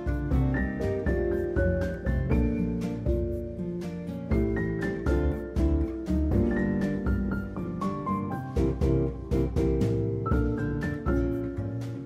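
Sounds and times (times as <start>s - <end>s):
instrumental music with steady beat: 0.0s - 12.0s.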